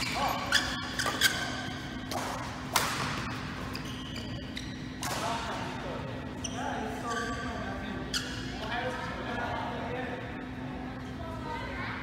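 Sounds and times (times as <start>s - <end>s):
rackets striking shuttlecock: 0.0s - 3.9s, 5.0s - 5.4s
shoes squeaking on court: 0.0s - 5.3s, 6.3s - 8.7s
steady low hum: 0.0s - 12.0s.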